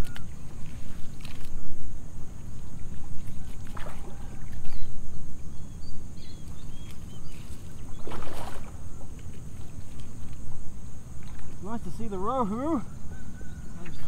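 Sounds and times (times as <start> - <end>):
fish splashing in shallows: 2.9 - 4.8, 6.8 - 10.4.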